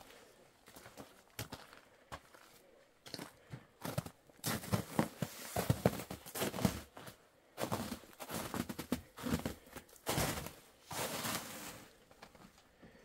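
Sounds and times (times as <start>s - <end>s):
crunching and rustling: 4.0s - 12.6s.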